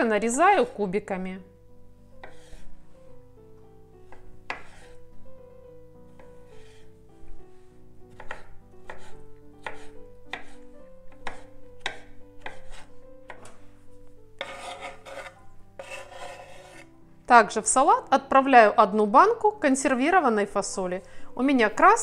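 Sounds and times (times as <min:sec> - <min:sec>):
knife chopping on wooden board: 0:02.2 - 0:02.6, 0:04.1 - 0:05.0, 0:08.1 - 0:13.6, 0:14.4 - 0:16.8
food scraped off board: 0:02.2 - 0:02.7, 0:04.1 - 0:05.0, 0:14.4 - 0:16.9.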